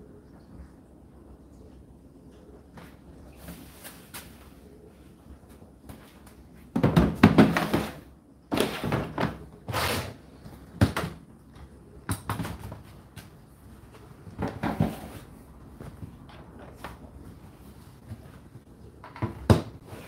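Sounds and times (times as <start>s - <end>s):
plastic container scraping and knocking: 6.7s - 10.1s, 14.4s - 15.3s.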